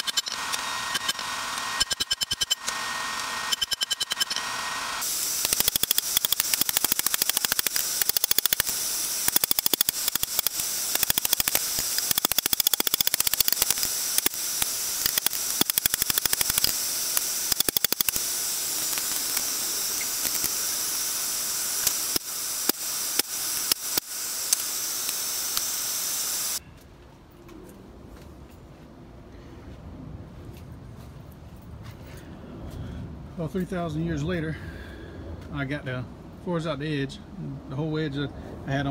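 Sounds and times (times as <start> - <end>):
steady loud hiss: 5.0 - 26.6.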